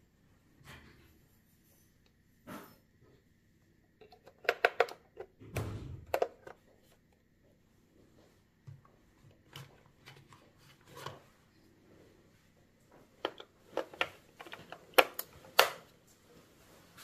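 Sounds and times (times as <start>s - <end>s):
plastic toy being handled: 4.0s - 5.4s, 6.1s - 7.2s, 9.3s - 11.3s, 12.9s - 15.9s.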